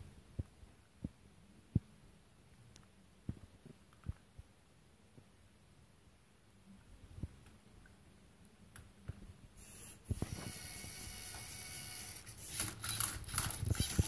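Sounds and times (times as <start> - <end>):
servo motors whirring: 9.6 - 14.0
plastic gears clattering: 12.3 - 14.0.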